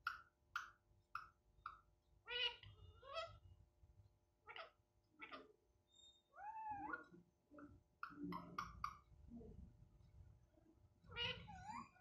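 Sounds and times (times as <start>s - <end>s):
parrot calling: 0.0s - 3.4s, 4.4s - 5.6s, 6.3s - 9.1s, 11.0s - 12.0s.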